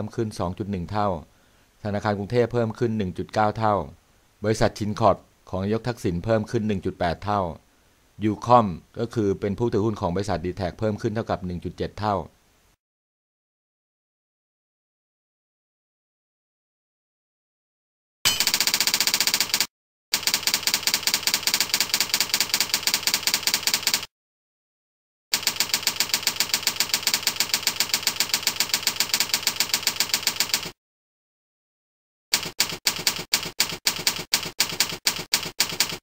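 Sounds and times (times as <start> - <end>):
typewriter key clacks: 32.4 - 36.0.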